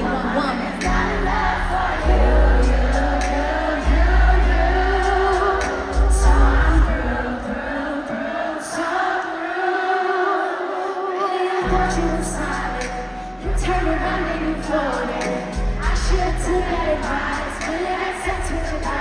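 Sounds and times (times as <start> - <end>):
deep bass line: 0.0 - 7.2
woman singing into microphone: 0.0 - 19.0.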